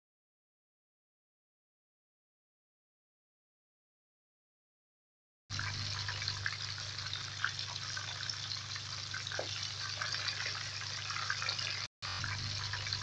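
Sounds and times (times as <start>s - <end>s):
curry bubbling and sizzling: 5.5s - 13.0s
low steady hum: 5.5s - 13.0s.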